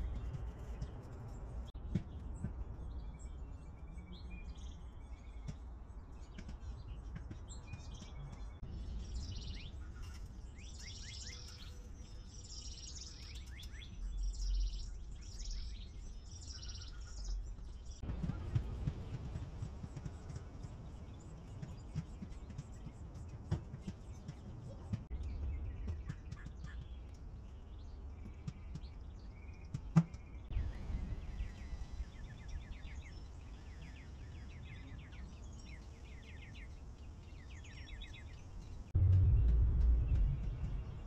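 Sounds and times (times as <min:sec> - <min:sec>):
small birds chirping: 0:00.0 - 0:41.0
low steady rumble: 0:38.2 - 0:41.0.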